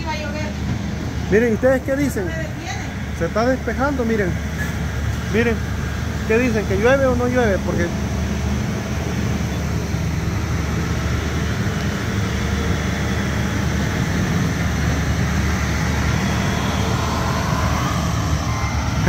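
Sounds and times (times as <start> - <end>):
distant heavy machinery engine drone: 0.0 - 19.0.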